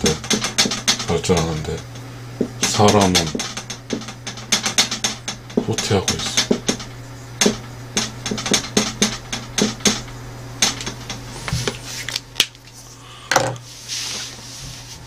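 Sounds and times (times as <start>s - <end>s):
knocks: 0.0s - 1.5s, 2.4s - 11.2s
low hum: 0.0s - 13.3s.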